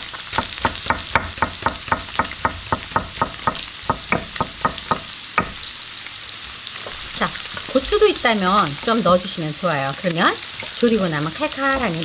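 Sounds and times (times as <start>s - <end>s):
tofu sizzling in oil: 0.0s - 12.0s
knife chopping on wooden board: 0.3s - 5.6s.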